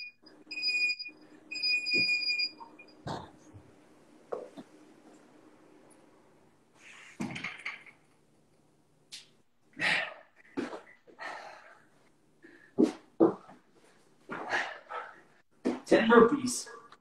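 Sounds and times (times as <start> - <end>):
person breathing hard: 11.1 - 13.1.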